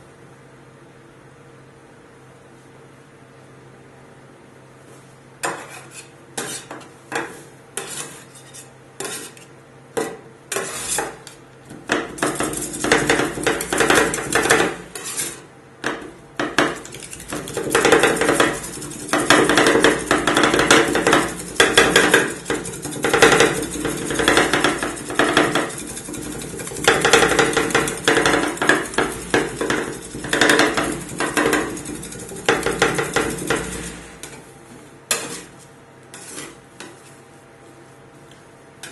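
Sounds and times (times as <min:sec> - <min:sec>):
metal spatulas chopping and scraping: 0:05.4 - 0:34.4, 0:35.1 - 0:37.1
steady low hum: 0:08.9 - 0:38.9.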